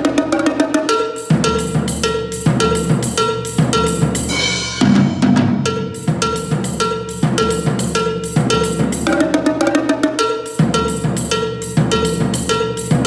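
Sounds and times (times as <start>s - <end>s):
toms and snare drum playing: 0.0s - 13.0s
ringing pitched hits: 2.0s - 8.4s.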